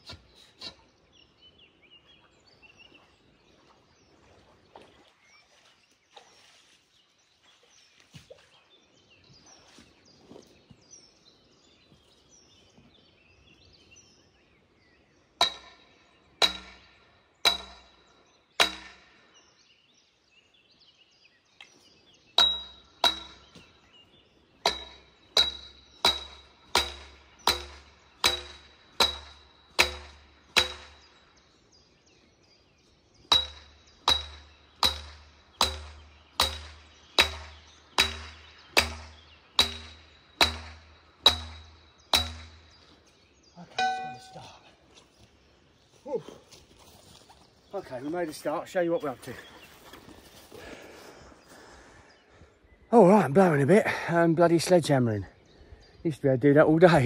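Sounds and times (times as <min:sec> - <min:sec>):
birds chirping: 0:00.0 - 0:57.0
sledgehammer clanging on steel tube: 0:15.4 - 0:18.0, 0:18.6 - 0:19.1, 0:22.4 - 0:23.6, 0:24.6 - 0:31.1, 0:33.3 - 0:42.7, 0:43.7 - 0:44.4.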